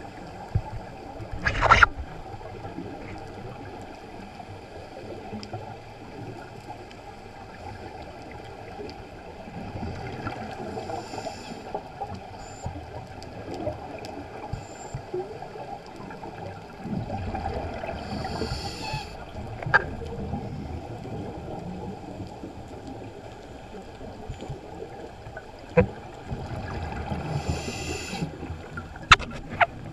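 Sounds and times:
muffled underwater gurgling: 0.0 - 29.9
regulator breaths hissing: 10.7 - 11.8, 17.9 - 19.2, 27.2 - 28.4
exhaled bubbles rushing: 16.3 - 23.1.

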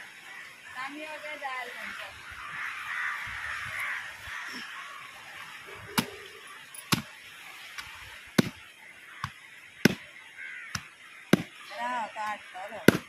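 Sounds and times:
knife chopping on wooden block: 9.8 - 10.0, 10.7 - 11.5.

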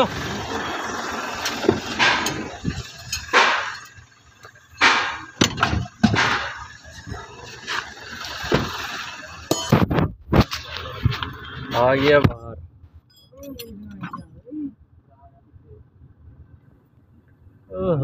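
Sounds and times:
metal tools knocking and clanking: 1.5 - 6.8, 9.5 - 9.9.

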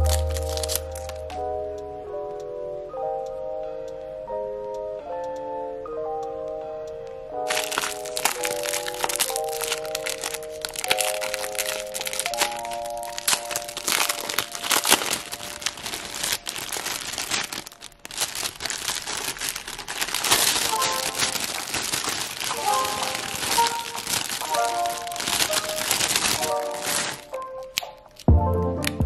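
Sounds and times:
cellophane wrapping crinkling: 0.0 - 1.3, 7.4 - 29.0.

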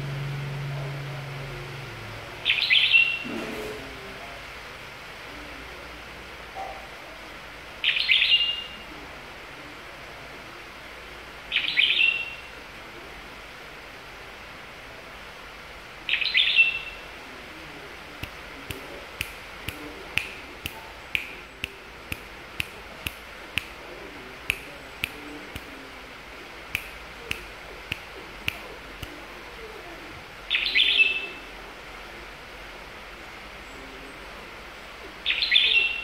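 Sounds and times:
bird song phrase: 2.4 - 3.3, 7.8 - 8.8, 11.5 - 12.5, 16.1 - 17.0, 30.5 - 31.5, 35.2 - 36.0
sharp clicks: 18.2 - 23.8, 26.7 - 29.2.

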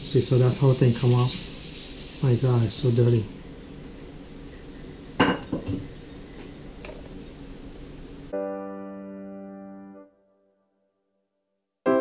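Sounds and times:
held electric piano chord: 8.3 - 10.4.

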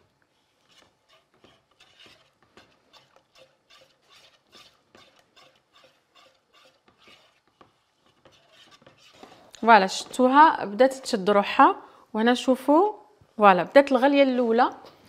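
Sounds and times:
whisk scraping in metal pot: 0.3 - 9.6.

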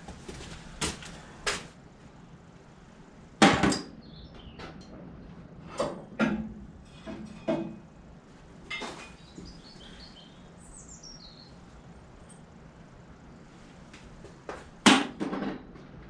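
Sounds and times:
sharp knocks and clanks: 3.4 - 7.9, 14.5 - 16.0
bird chirping: 4.0 - 4.7, 9.1 - 11.9.

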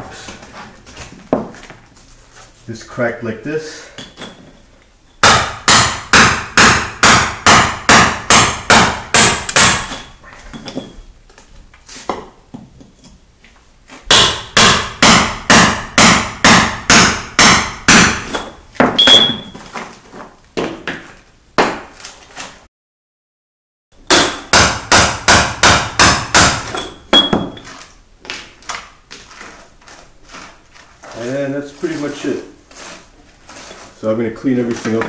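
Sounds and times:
hammer striking steel chisel: 5.2 - 10.1, 14.1 - 19.5, 24.1 - 27.7.

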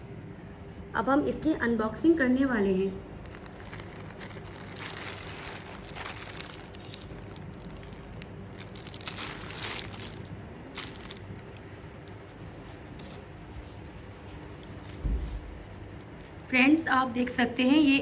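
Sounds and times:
plastic packaging crinkling: 3.2 - 16.1.

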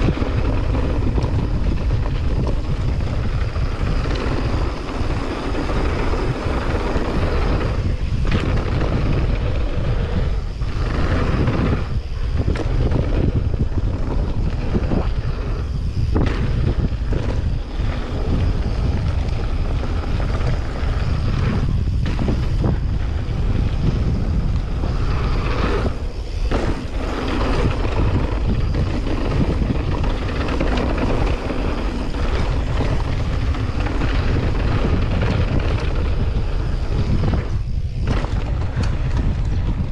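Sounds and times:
bike tyres rumbling over gravel: 0.0 - 39.9
wind buffeting microphone: 0.0 - 39.9
bike knocking over bumps: 16.1 - 24.0, 24.7 - 39.9.

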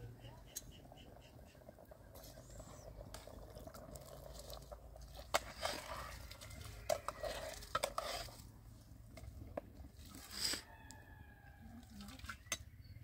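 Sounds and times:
metal pots and ladle clanking: 4.6 - 8.4.

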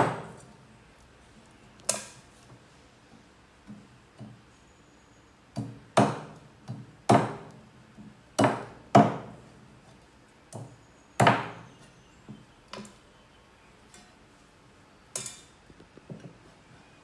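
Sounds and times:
cleaver chopping on wooden board: 5.6 - 7.6, 8.4 - 9.4, 10.6 - 11.6.

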